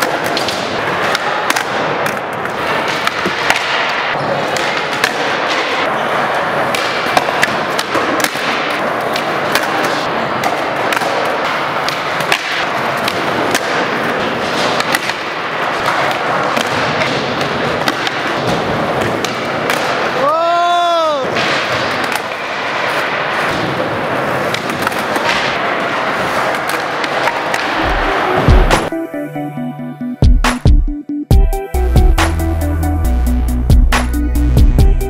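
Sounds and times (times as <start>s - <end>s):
skateboard wheels rolling: 0.0s - 28.9s
skateboards clacking and landing: 0.0s - 28.9s
background din: 27.5s - 35.0s.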